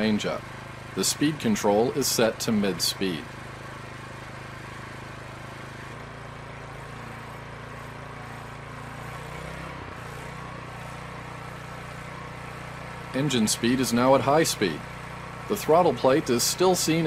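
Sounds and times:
small gasoline engine running: 0:00.0 - 0:17.0.

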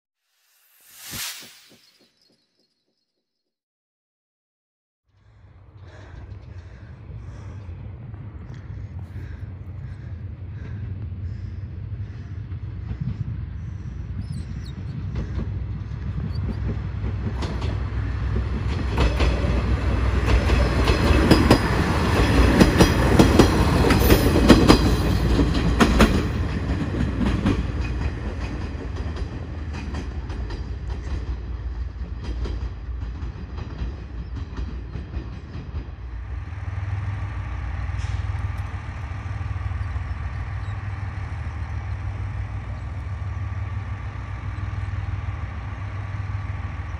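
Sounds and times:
train low hum: 0:05.1 - 0:46.9
train wheels clattering: 0:14.9 - 0:46.9.

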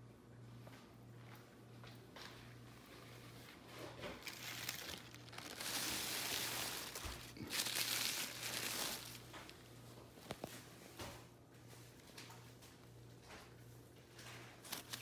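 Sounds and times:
tissue paper crinkling: 0:04.0 - 0:10.5, 0:14.2 - 0:15.0.

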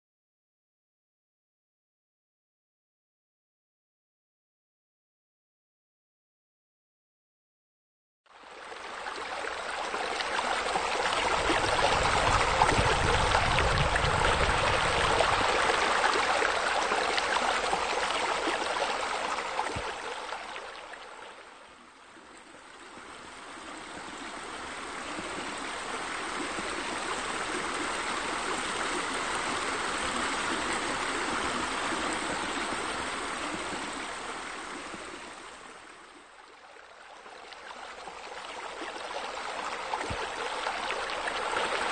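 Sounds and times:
small waterfall splashing: 0:08.4 - 0:21.6, 0:22.6 - 0:41.9.

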